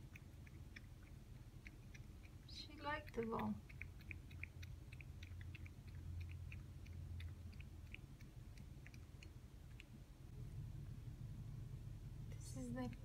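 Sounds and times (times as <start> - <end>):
cat chewing clicks: 0.0 - 10.0
low steady hum: 0.0 - 13.0.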